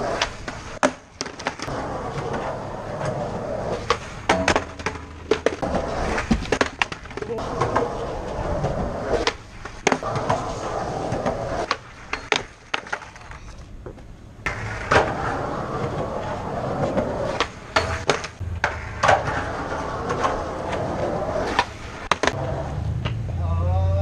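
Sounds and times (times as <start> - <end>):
skateboard wheels rolling on concrete: 0.0 - 24.0
skateboard clacking on ground: 0.1 - 23.2.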